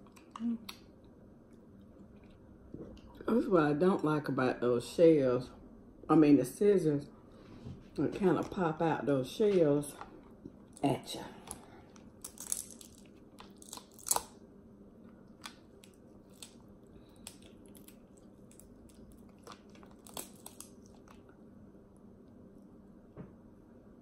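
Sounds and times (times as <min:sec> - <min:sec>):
crab shells cracking: 0:11.9 - 0:14.4, 0:15.3 - 0:21.3.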